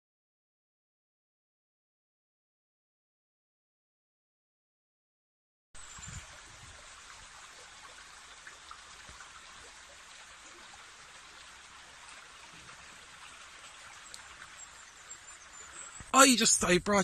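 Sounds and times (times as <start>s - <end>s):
faint outdoor hiss: 5.8s - 17.0s
light ticks: 14.1s - 14.6s.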